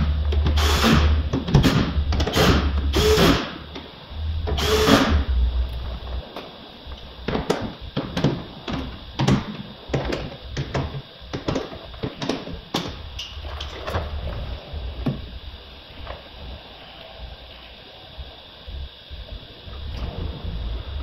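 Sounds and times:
small power tool whirring: 0.5s - 1.1s, 4.5s - 5.3s.

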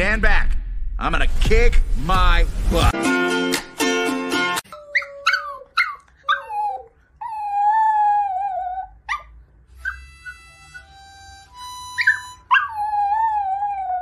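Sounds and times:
dog howling and yipping: 4.8s - 10.8s, 11.9s - 14.0s.

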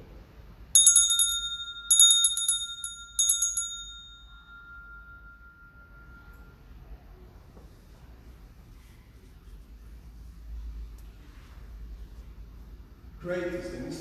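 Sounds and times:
altar bells jangling: 0.8s - 6.5s.

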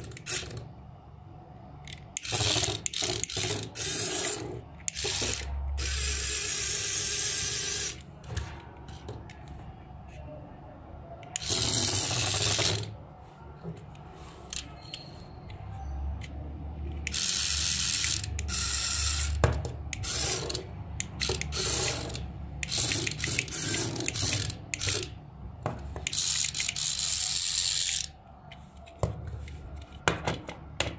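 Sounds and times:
small gear motor whirring: 2.2s - 8.0s, 17.1s - 19.4s, 20.0s - 25.1s.

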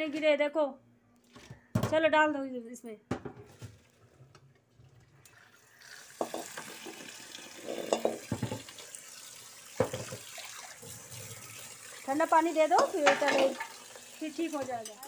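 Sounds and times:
tap water running into sink: 5.2s - 15.0s
metal wok clanking on sink: 6.2s - 7.0s, 7.6s - 8.7s, 12.6s - 15.0s.

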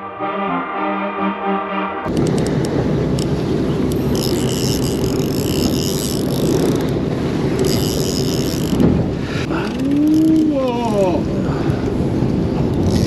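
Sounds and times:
wind and sea noise: 2.0s - 13.0s
boat engine running: 2.1s - 13.0s
fishing reel whirring: 3.9s - 7.0s, 7.6s - 8.8s, 12.8s - 13.0s.

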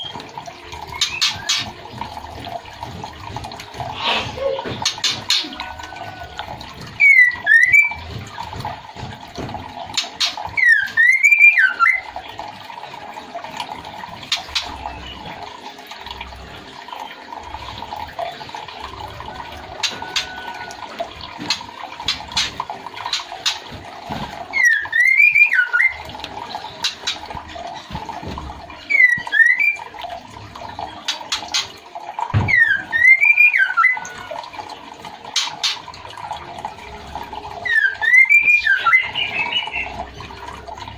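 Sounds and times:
running water: 0.0s - 40.9s
bird whistling phrases: 10.6s - 12.1s, 24.6s - 26.0s, 28.9s - 29.9s, 32.4s - 34.3s, 37.6s - 40.0s.

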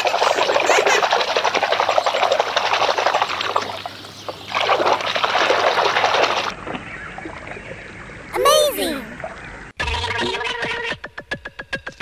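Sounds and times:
water splashing in a basin: 0.0s - 7.6s.

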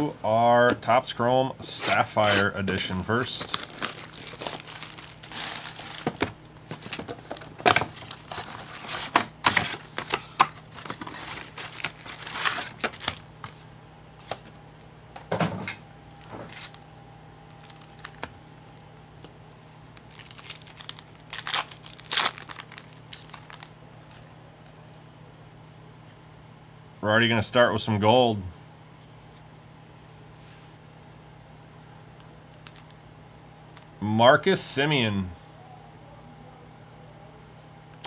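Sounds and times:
packaging rustling: 1.9s - 13.6s, 16.1s - 16.8s, 17.5s - 18.5s, 19.8s - 24.3s, 32.5s - 33.0s
plastic shrink wrap crinkling: 2.2s - 13.2s, 17.5s - 18.4s, 19.8s - 24.3s, 32.5s - 33.0s.

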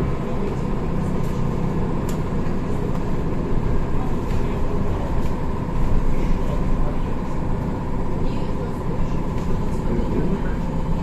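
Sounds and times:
low rumble of bus ride: 0.0s - 11.0s.

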